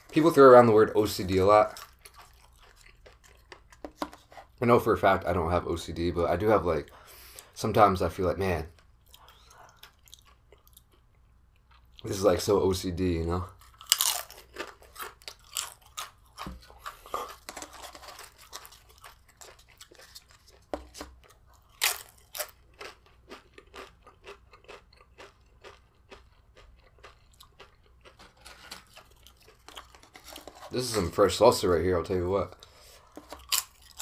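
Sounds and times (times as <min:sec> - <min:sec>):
chips crunched and chewed: 0:00.1 - 0:04.1, 0:08.7 - 0:12.2, 0:13.6 - 0:31.3, 0:33.1 - 0:34.0.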